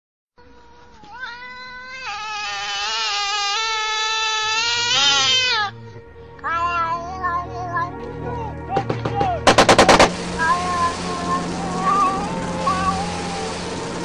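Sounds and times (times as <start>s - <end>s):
cat yowling: 1.0s - 5.7s.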